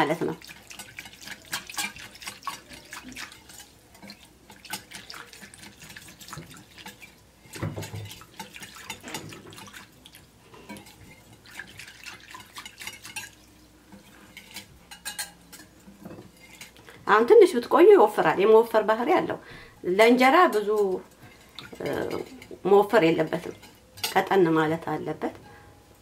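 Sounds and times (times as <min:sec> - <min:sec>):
whisk splashing watery mixture: 0:00.0 - 0:16.8.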